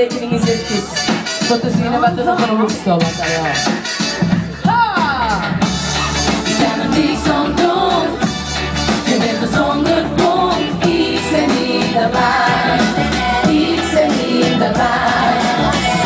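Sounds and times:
backing track with steady beat: 0.0s - 16.0s
person singing: 6.3s - 8.3s, 8.9s - 16.0s.

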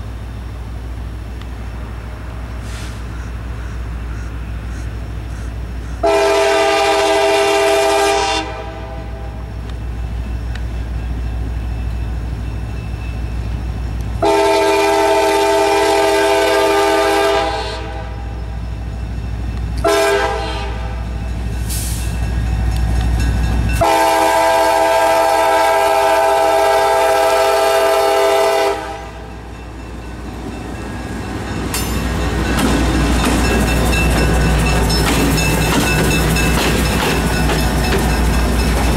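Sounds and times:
diesel locomotive engine rumble: 0.0s - 38.9s
train wheel noise: 0.0s - 38.9s
locomotive air horn blasts: 6.0s - 9.5s, 14.2s - 18.3s, 19.8s - 21.1s, 23.8s - 29.3s.

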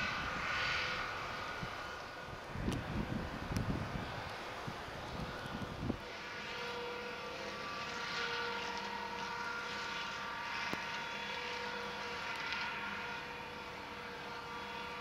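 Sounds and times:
wind buffeting microphone: 0.0s - 6.0s
tractor hedge cutter whine: 0.0s - 15.0s.

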